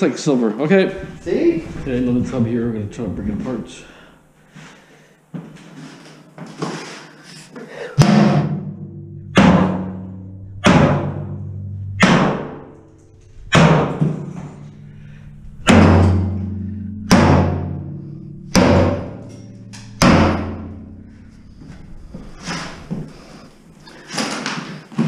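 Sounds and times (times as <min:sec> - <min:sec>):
sledgehammer striking metal bathtub: 0:08.0 - 0:25.0
bell-like ringing of tub: 0:08.6 - 0:24.1.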